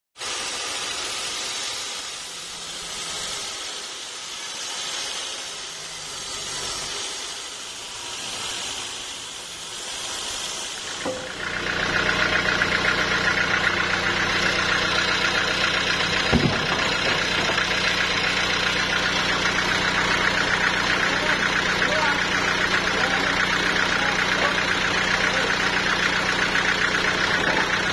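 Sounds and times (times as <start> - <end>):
band saw cutting wood: 0.2 - 27.9
machinery hum: 0.8 - 27.9
knock: 16.3 - 16.8.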